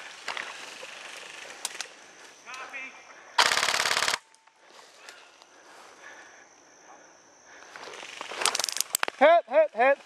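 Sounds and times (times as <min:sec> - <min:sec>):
crickets trilling: 0:00.0 - 0:10.0
rustling through brush and leaves: 0:07.6 - 0:09.2.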